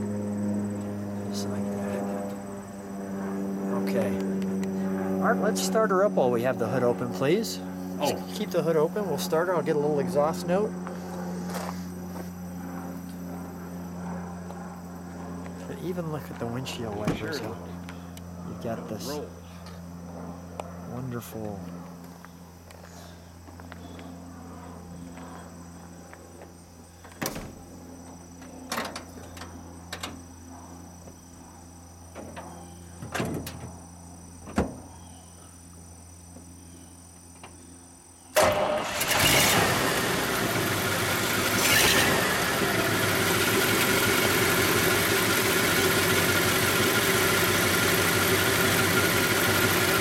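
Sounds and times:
car engine starting and idling: 38.4s - 50.0s.

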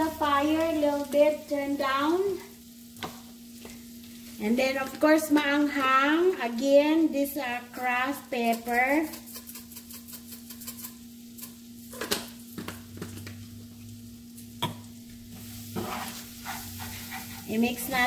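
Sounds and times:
meat sizzling in a frying pan: 0.0s - 18.0s
wooden spoon scraping a pan: 15.4s - 18.0s.

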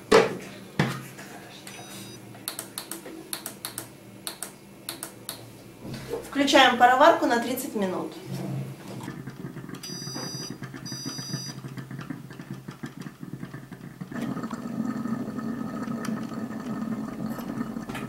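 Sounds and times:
food steamer humming: 8.8s - 18.0s.

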